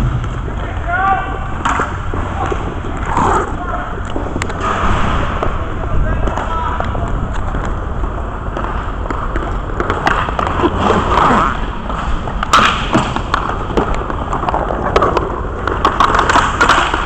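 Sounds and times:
hockey sticks and puck clacking: 0.0 - 17.0
low rink rumble: 0.0 - 17.0.

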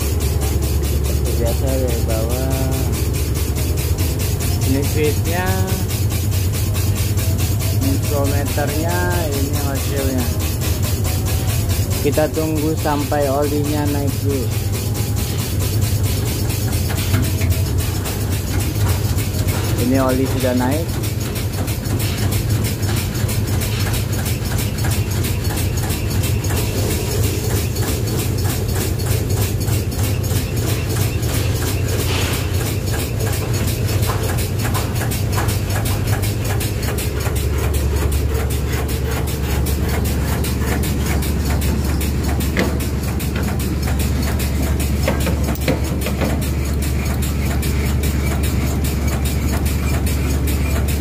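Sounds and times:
engine humming: 0.0 - 20.8
fast even ticking: 0.0 - 22.0
truck engine and pump drone: 0.0 - 51.0.

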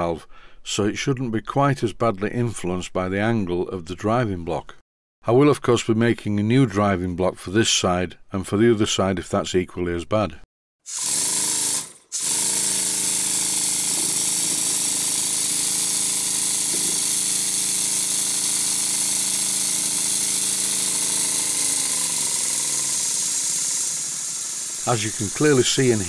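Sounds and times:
model steam engine running on air: 10.9 - 26.0.

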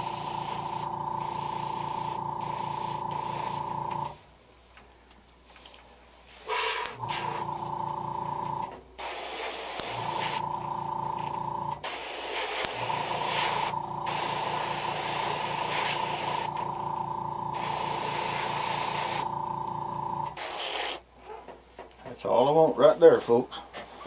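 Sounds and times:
airbrush spraying hiss: 0.0 - 4.1, 6.3 - 7.5, 9.0 - 10.5, 11.7 - 16.6, 17.5 - 19.3, 20.3 - 21.0
steady tonal hum: 0.0 - 4.2, 9.9 - 11.8, 12.8 - 20.3.

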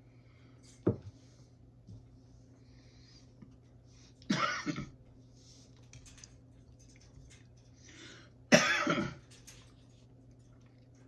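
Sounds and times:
low steady hum: 0.0 - 11.0
man coughing: 4.3 - 5.0, 8.5 - 9.2.

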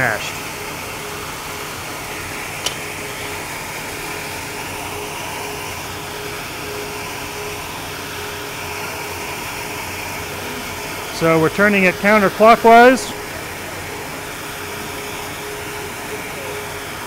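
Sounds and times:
ventilation and machinery hum: 0.0 - 17.0.

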